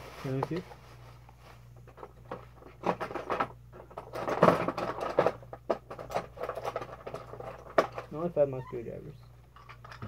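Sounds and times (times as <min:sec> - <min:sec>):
clicks and knocks of plastic toys: 0:01.9 - 0:08.3.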